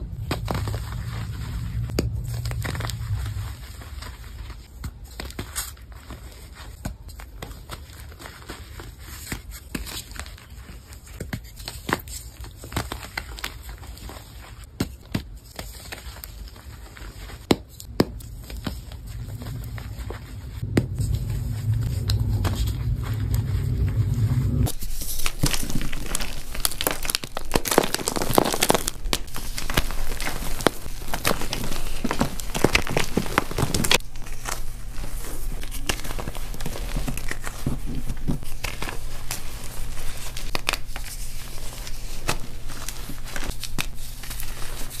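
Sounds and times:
chalk crumbling in hands: 24.7s - 45.0s.

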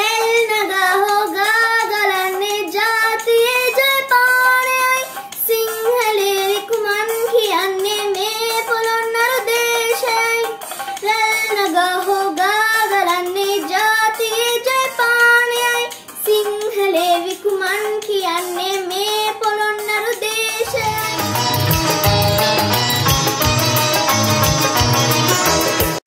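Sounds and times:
girl singing solo: 0.0s - 22.1s
instrumental music with low beat: 20.6s - 26.0s.

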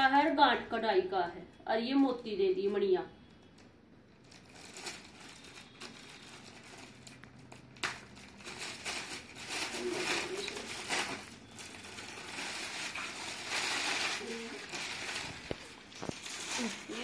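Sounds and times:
fabric rustling and crinkling: 4.2s - 17.0s.

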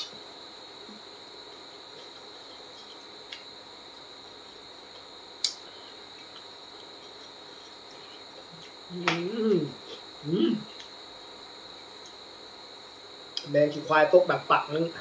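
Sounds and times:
high-pitched whine: 0.0s - 15.0s
man humming: 8.9s - 10.7s.

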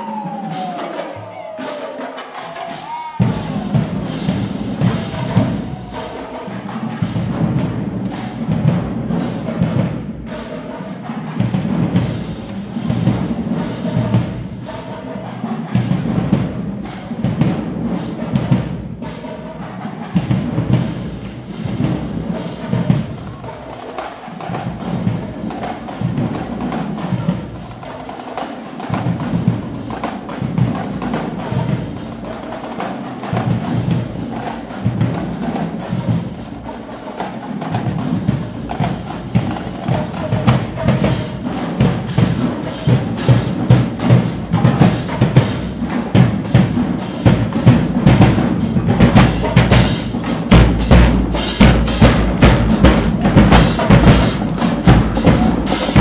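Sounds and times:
snare drum hits: 20.1s - 56.0s
bass drum beats: 41.8s - 56.0s.

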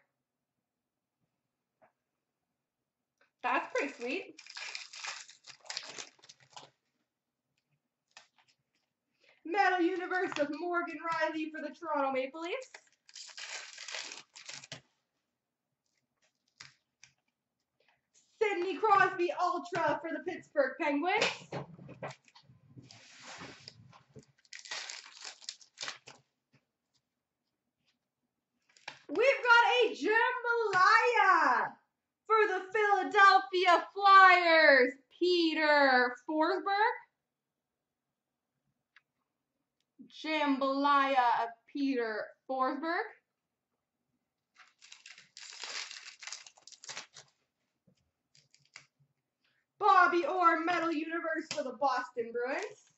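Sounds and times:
card pack wrapper tearing: 3.8s - 6.8s, 12.7s - 14.8s, 24.4s - 26.2s, 44.6s - 47.4s, 48.3s - 48.9s.

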